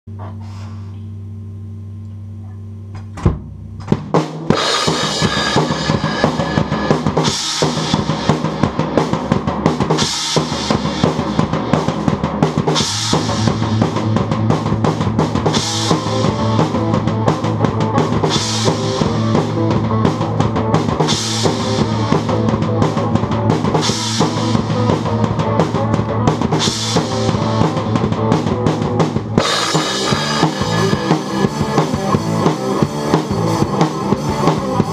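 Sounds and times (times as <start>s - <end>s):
acoustic drum kit: 3.0s - 34.9s
crash cymbal accents: 4.5s - 8.0s, 29.4s - 32.4s
song playing: 4.5s - 8.3s, 15.5s - 34.9s.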